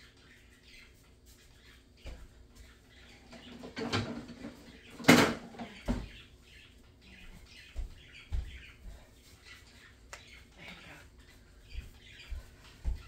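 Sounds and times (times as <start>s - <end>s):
kitchen things clattering: 3.2s - 6.1s.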